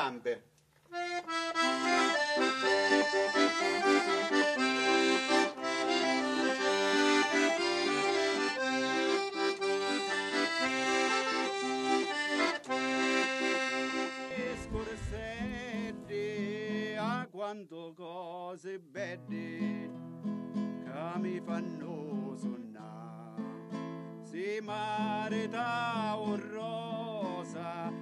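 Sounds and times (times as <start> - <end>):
accordion playing folk tune: 0.9 - 17.3, 23.4 - 28.0
music: 0.9 - 17.4, 19.0 - 28.0.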